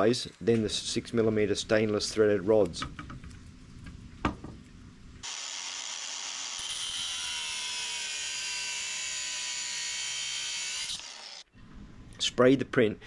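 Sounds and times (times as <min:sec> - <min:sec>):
angle grinder cutting steel rod: 0:05.2 - 0:11.5.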